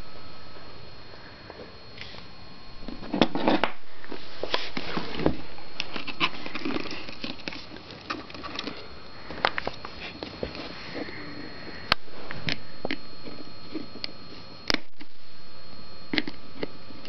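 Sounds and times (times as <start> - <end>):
hand tool scraping plastic casing: 4.5 - 10.8.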